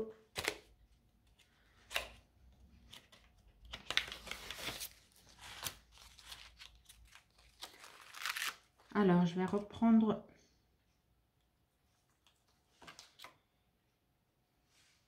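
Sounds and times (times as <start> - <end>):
paper and plastic rustling: 1.3 - 8.6.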